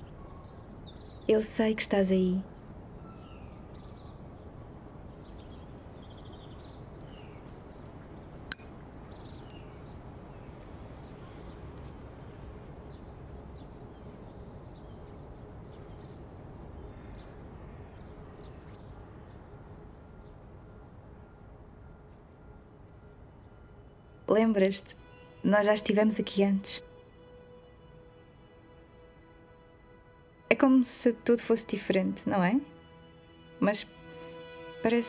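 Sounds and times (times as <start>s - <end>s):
small birds chirping: 0.0s - 20.9s
distant city rumble: 0.0s - 35.0s.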